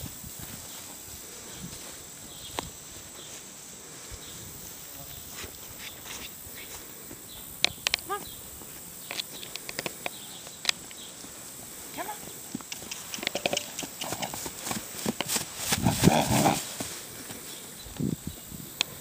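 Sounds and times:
horse hoofbeats on grass: 9.9s - 18.6s.

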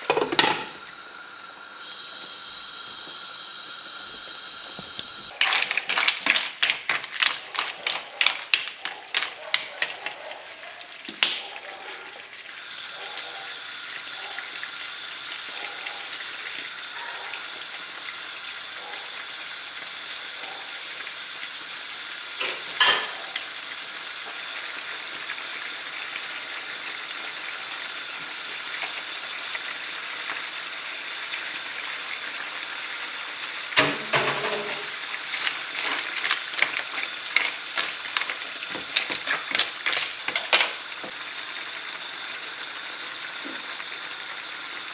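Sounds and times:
shellfish sizzling in a frying pan: 0.0s - 44.9s
wooden spoon clattering on shells: 5.3s - 10.2s, 35.4s - 40.8s.

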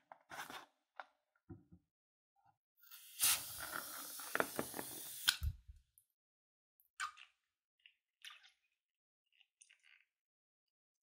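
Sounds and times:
balloon hissing as it empties: 2.9s - 5.6s.

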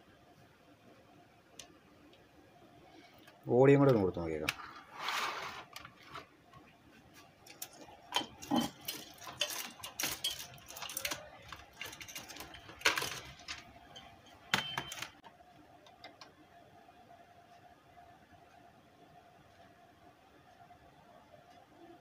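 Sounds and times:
clicks and metallic knocks: 7.5s - 15.3s.

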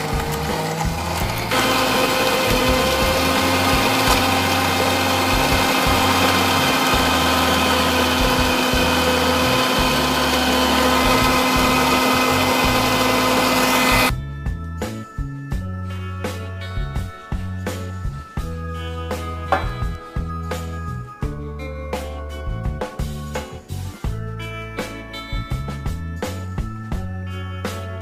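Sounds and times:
mixer grinder running: 0.0s - 14.1s
background music: 0.0s - 28.0s.

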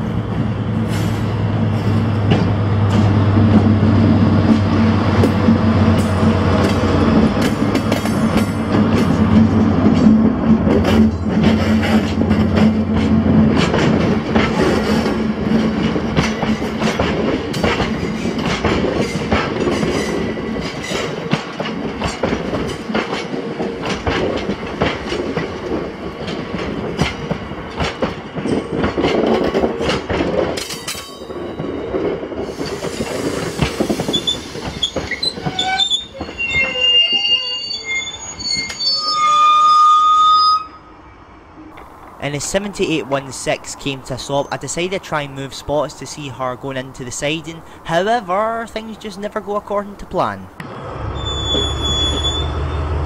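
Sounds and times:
train rumble: 0.0s - 37.4s, 41.1s - 53.0s
train wheels clicking over rail joints: 0.2s - 36.8s
wheel squeals: 32.5s - 40.7s, 51.0s - 53.0s.

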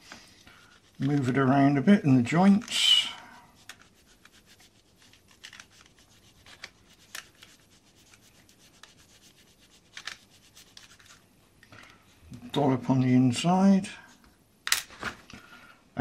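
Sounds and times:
glue applicator rubbing and scraping: 2.3s - 11.2s.

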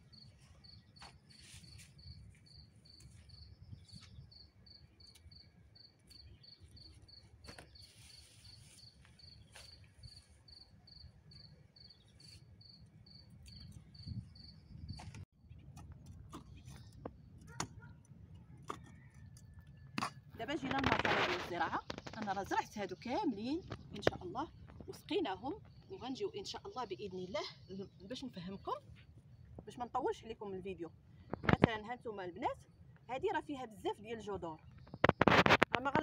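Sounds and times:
cricket chirping: 0.0s - 15.1s
plant stems rustling: 0.3s - 4.0s, 5.1s - 10.5s.

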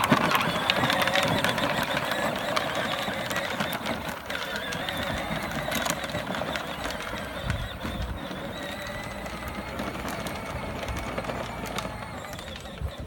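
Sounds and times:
electric motor whining: 0.0s - 13.0s
scattered clicks: 0.0s - 13.0s.

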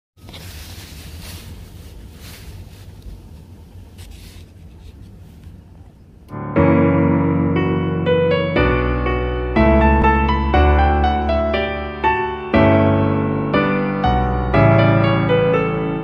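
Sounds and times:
piano music: 6.3s - 16.0s.

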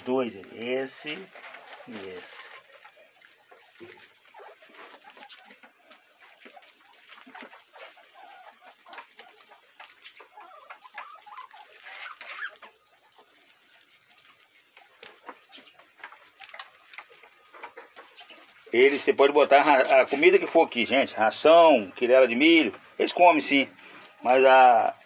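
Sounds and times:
guinea pigs rustling in hay: 0.0s - 25.0s
soft animal calls: 0.0s - 25.0s.

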